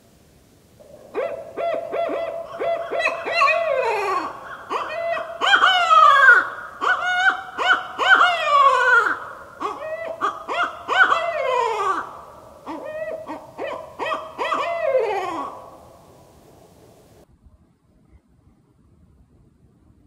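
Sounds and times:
owl hooting and wailing: 0.8s - 16.0s.

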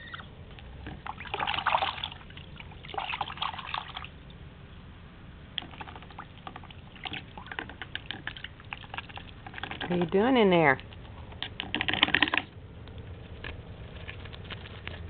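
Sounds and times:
goose splashing and slurping water: 0.0s - 4.6s, 5.4s - 15.0s
bill clicking in water: 5.5s - 15.0s.

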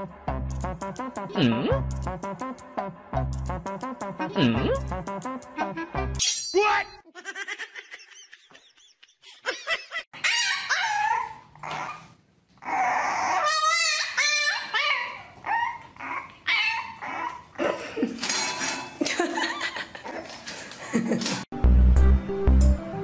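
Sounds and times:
puppies whimpering and yipping: 10.2s - 17.6s.

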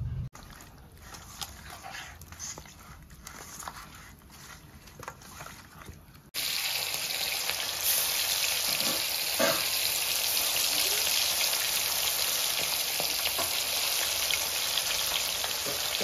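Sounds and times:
fish frying in hot oil: 6.4s - 16.0s.

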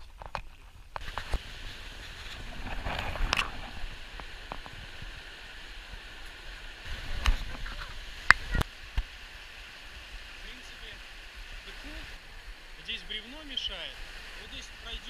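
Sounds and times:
river rapids rushing over stones: 5.4s - 15.0s.

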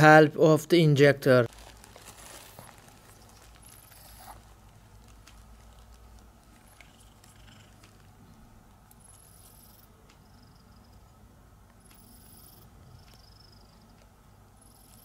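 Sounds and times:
low steady hum: 0.0s - 15.0s
small rustles: 1.5s - 8.2s.

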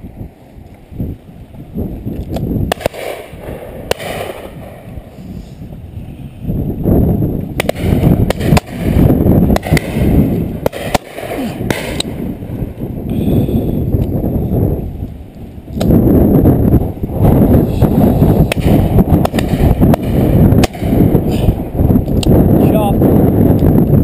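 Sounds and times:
wind buffeting microphone: 0.0s - 24.0s
shotgun shots: 2.7s - 4.9s, 7.6s - 12.3s, 18.4s - 21.1s.

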